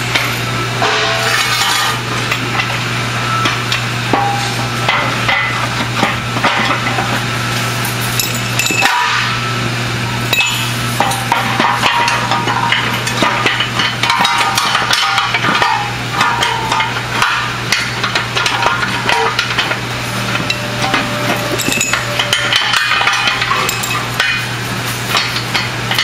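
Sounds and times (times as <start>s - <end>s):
steady low hum: 0.0s - 26.0s
metallic knocks and clinks: 8.0s - 9.0s, 10.3s - 16.9s, 20.4s - 24.5s.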